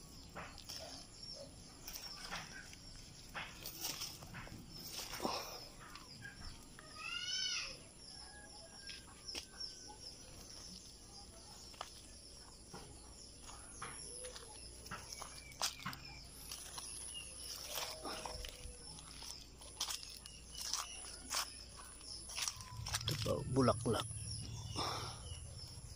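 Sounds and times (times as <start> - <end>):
leaves rustling and stems snapping: 15.1 - 21.5, 22.2 - 23.4.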